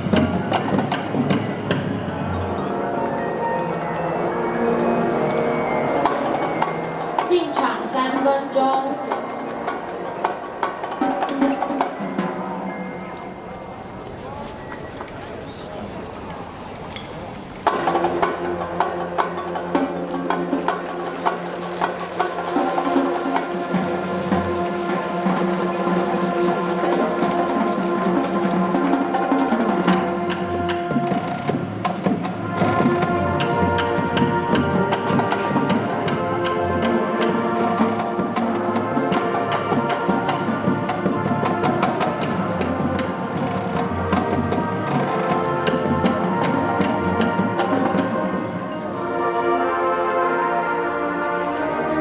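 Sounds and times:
brass horns holding chords: 0:20.9 - 0:52.0.

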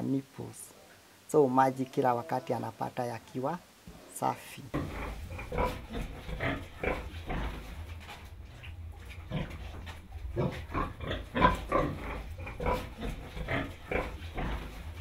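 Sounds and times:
pigs grunting: 0:04.7 - 0:07.8, 0:08.5 - 0:15.0.

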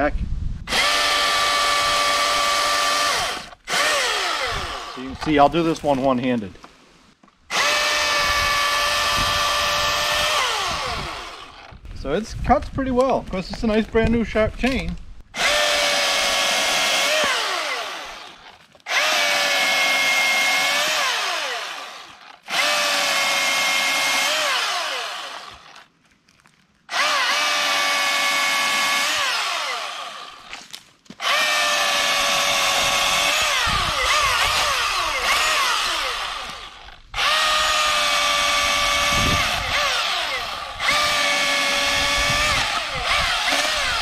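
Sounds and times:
battery chainsaw cutting wood: 0:00.7 - 0:05.8, 0:07.5 - 0:11.9, 0:15.3 - 0:25.9, 0:26.9 - 0:44.0.

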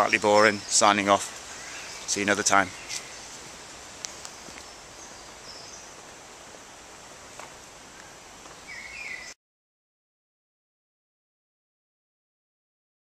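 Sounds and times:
faint bird calls: 0:00.0 - 0:03.4, 0:07.9 - 0:09.4
outdoor hiss: 0:00.0 - 0:09.4.

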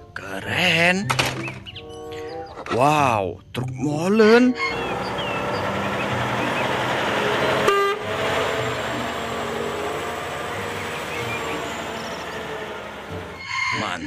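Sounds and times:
diesel truck driving past: 0:04.6 - 0:14.0
short horn toot: 0:07.5 - 0:08.1.

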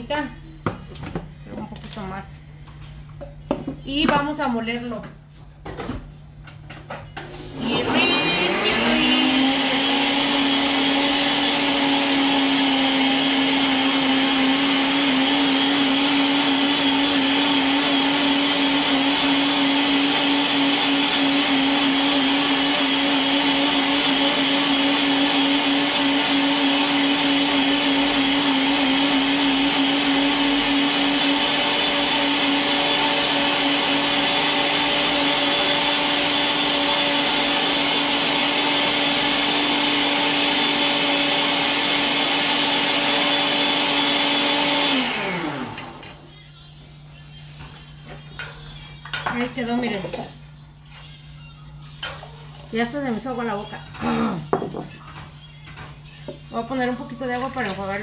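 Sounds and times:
blender motor whirring: 0:07.2 - 0:46.3.

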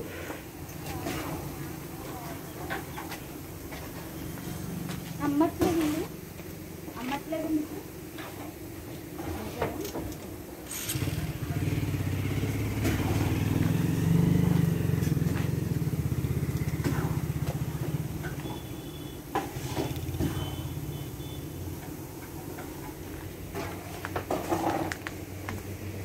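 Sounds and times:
engine rumbling: 0:10.6 - 0:26.0.

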